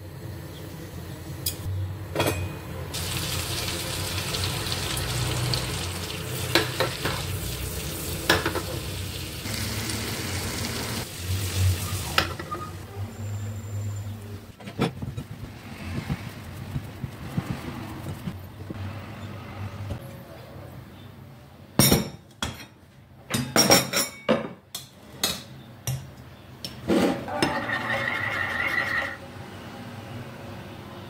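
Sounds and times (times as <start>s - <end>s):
ladle clinking against pot and dishes: 1.4s - 2.7s
ladle scraping pot: 27.0s - 29.2s.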